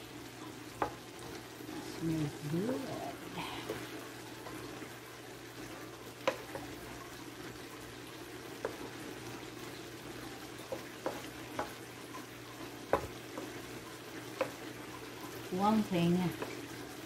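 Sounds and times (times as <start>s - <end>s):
food sizzling in a frying pan: 0.0s - 17.0s
wooden spoon stirring in a pan: 0.0s - 17.0s
spoon knocking against a pan: 6.2s - 6.8s, 10.6s - 13.7s, 14.3s - 14.7s.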